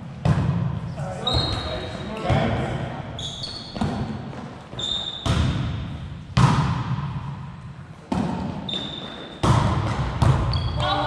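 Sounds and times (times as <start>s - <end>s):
volleyball hits echoing: 0.1s - 0.9s, 2.2s - 2.9s, 3.6s - 11.0s
sneakers squeaking on hardwood: 1.2s - 2.4s, 3.2s - 5.7s, 8.1s - 11.0s.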